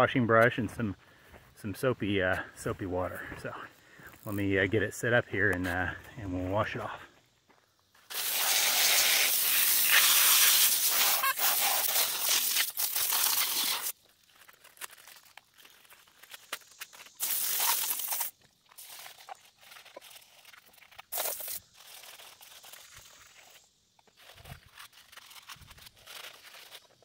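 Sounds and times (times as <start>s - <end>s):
hose nozzle spraying water: 8.1s - 14.0s, 16.2s - 27.0s.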